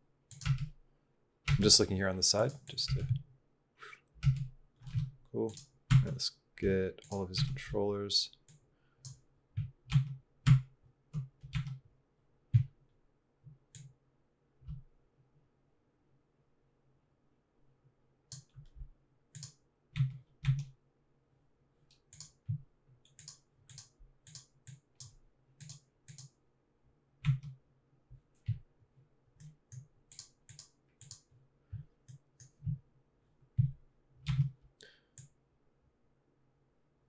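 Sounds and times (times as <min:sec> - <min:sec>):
mouse and keyboard clicks: 0:23.1 - 0:26.3, 0:29.4 - 0:31.3.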